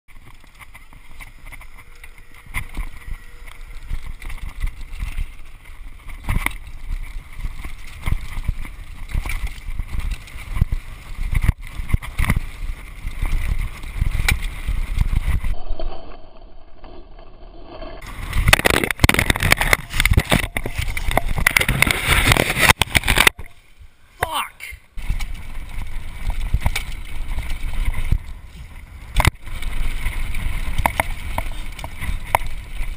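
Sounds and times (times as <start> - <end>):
bike rattling over bumps: 0.1 - 15.6, 16.9 - 23.8, 24.9 - 32.9
wind rumbling on microphone: 0.1 - 32.9.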